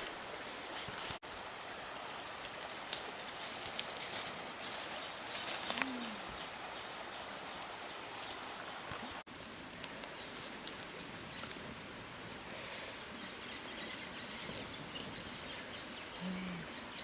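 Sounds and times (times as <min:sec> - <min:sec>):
outdoor background hiss: 0:00.0 - 0:17.0
wood fire crackling and popping: 0:09.2 - 0:16.2.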